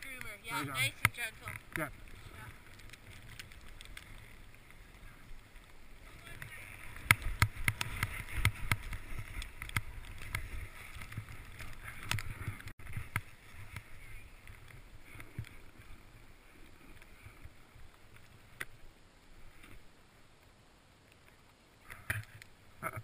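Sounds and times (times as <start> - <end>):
skis swishing through snow: 2.0 - 17.4.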